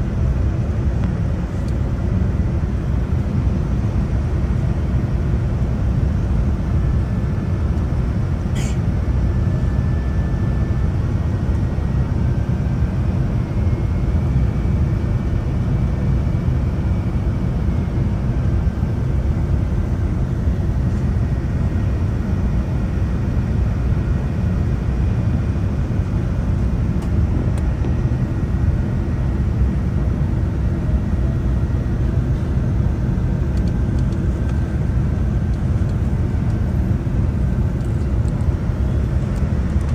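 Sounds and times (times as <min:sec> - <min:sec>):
airliner cabin engine rumble: 0:00.0 - 0:39.9.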